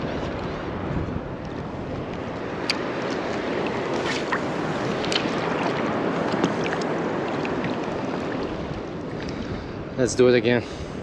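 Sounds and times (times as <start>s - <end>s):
choppy water lapping: 0.0s - 10.0s.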